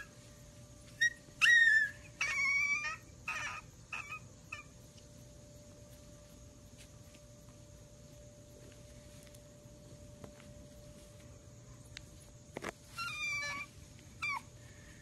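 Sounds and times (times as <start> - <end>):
puppies whimpering and howling: 0.0 - 0.3, 0.9 - 4.8, 12.8 - 14.6.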